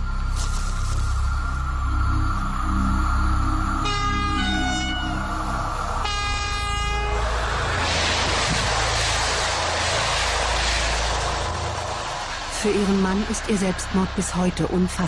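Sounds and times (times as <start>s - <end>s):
train passing rumble: 0.0s - 15.0s
train horn: 3.8s - 5.3s, 6.0s - 7.4s.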